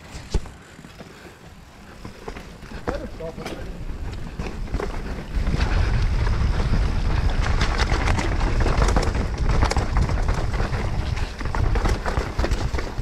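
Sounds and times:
mountain bike rattling: 0.0s - 13.0s
wind rumble on microphone: 3.8s - 13.0s.

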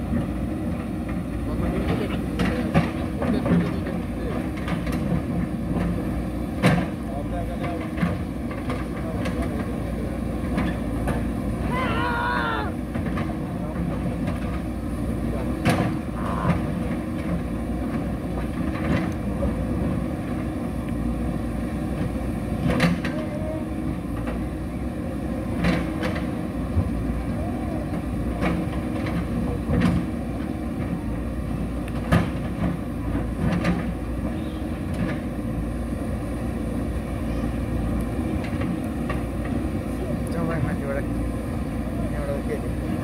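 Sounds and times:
diesel engine running: 0.0s - 43.0s.

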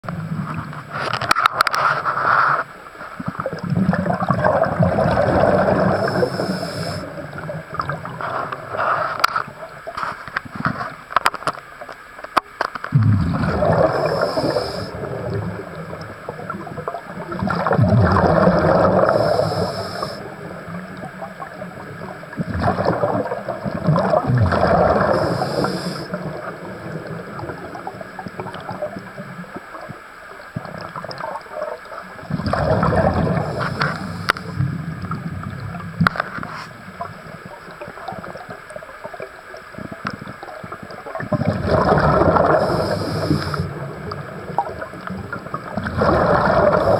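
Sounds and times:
bubbles rushing and gurgling: 0.0s - 11.3s, 12.9s - 46.9s
diver breathing through regulator: 5.0s - 7.2s, 8.2s - 9.4s, 13.2s - 15.1s, 18.2s - 20.4s, 24.6s - 26.4s, 32.7s - 34.8s, 42.2s - 43.8s, 46.0s - 46.9s.

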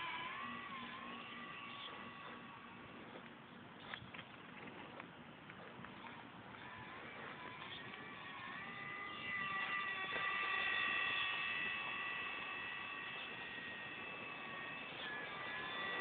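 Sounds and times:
model plane motor whining: 0.0s - 16.0s.

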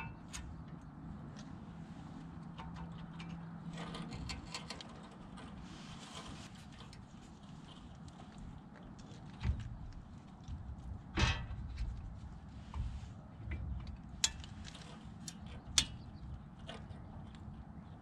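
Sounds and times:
steady low rumble: 0.0s - 18.0s
metal scraping clunk: 2.6s - 7.9s, 11.1s - 16.9s.

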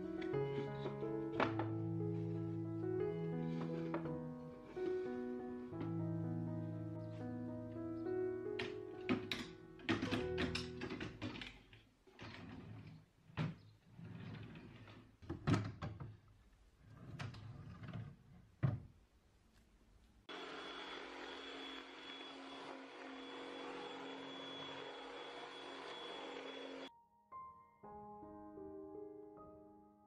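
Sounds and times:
drawers shutting with knocks: 8.6s - 13.7s
vacuum cleaner humming: 20.3s - 26.9s.

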